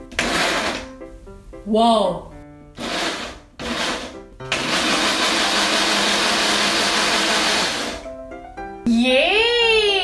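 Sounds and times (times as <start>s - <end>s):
electric blender running: 0.1s - 0.9s, 2.8s - 8.1s.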